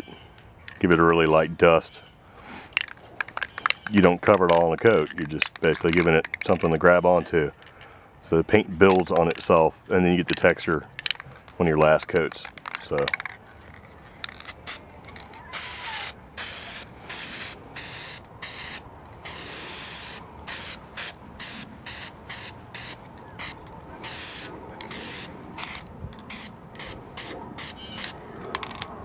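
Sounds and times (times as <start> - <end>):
spray-paint can hissing: 15.6 - 28.1.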